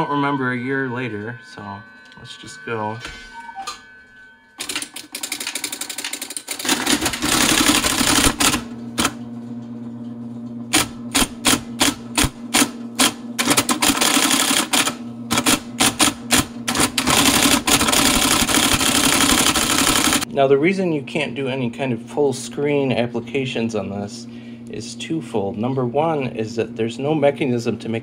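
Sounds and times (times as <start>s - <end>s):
typewriter motor hum: 4.6s - 9.2s, 10.7s - 20.2s
typewriter typeball striking paper: 10.7s - 20.2s.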